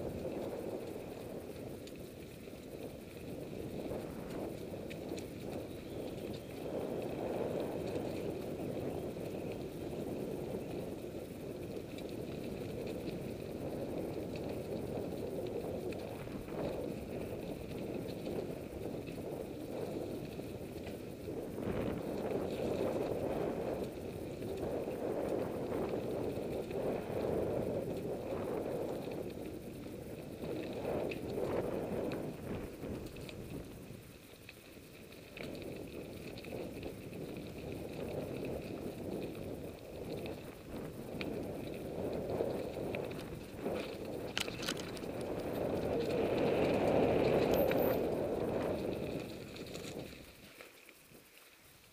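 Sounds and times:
bike tyre rumble on dirt: 0.0s - 51.9s
bike and mount rattling: 28.2s - 51.2s.

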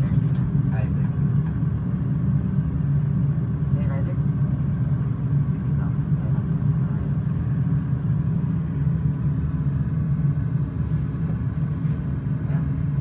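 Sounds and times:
low rumble of aircraft engine: 0.0s - 13.0s.

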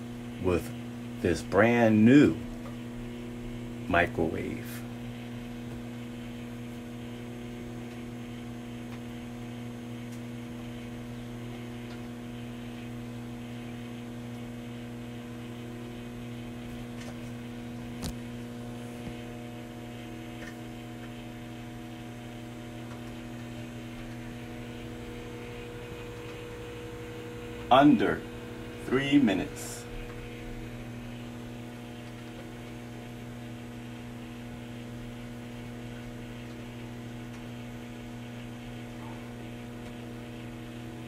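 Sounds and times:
microwave oven humming: 0.0s - 41.0s.

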